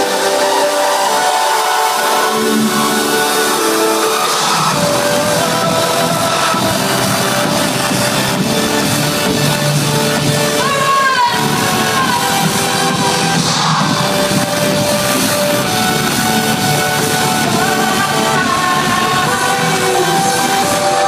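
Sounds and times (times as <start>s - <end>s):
trance music over pa: 0.0s - 21.0s
woman singing gliding notes: 17.2s - 21.0s.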